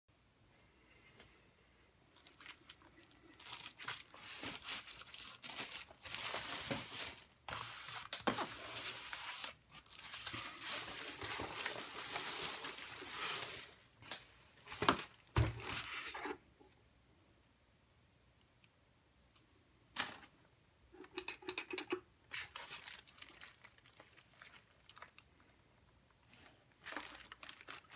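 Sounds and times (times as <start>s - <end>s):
plastic bag crinkling: 2.1s - 16.1s, 22.3s - 25.4s, 26.3s - 27.9s.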